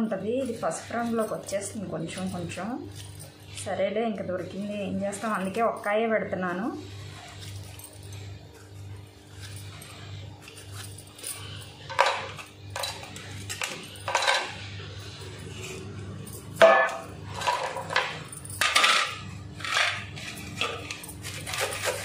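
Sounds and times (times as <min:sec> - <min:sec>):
metal kitchen utensils clinking: 0:00.0 - 0:03.7, 0:11.4 - 0:22.0.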